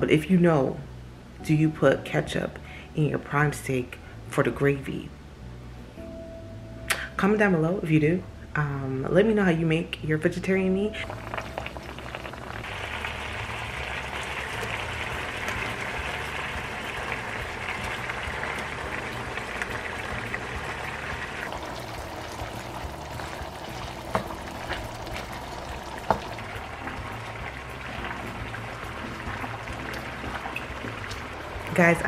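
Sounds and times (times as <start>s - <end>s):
water running: 11.0s - 32.0s.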